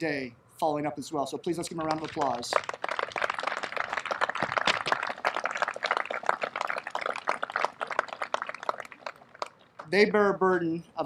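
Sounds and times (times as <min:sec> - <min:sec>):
audience applauding: 0:01.7 - 0:09.9.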